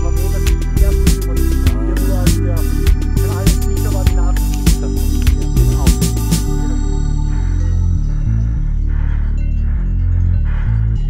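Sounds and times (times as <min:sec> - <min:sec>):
held low tones: 0:00.0 - 0:11.0
steady beat: 0:00.0 - 0:11.0.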